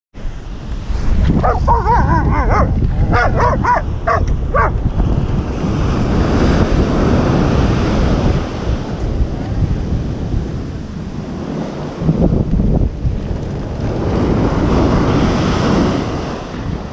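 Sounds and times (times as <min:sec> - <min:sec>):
waves breaking: 0:00.2 - 0:16.9
wind buffeting microphone: 0:00.2 - 0:16.9
animal wavering cries and yelps: 0:01.4 - 0:04.8.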